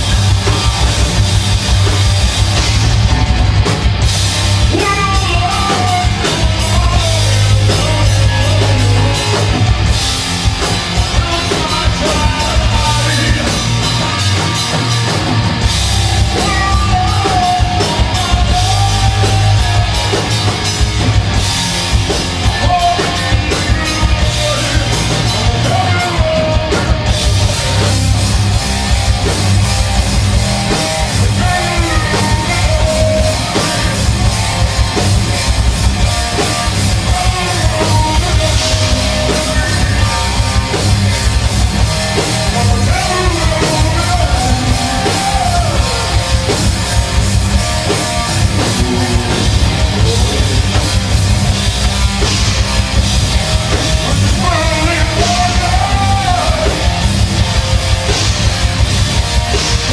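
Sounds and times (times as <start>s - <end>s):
distorted electric guitar: 0.0s - 59.9s
drum kit: 0.0s - 59.9s
man singing: 4.6s - 9.7s, 10.6s - 14.6s, 16.2s - 20.6s, 22.3s - 27.9s, 30.7s - 34.9s, 36.3s - 41.3s, 42.1s - 46.7s, 48.2s - 51.3s, 53.9s - 57.5s.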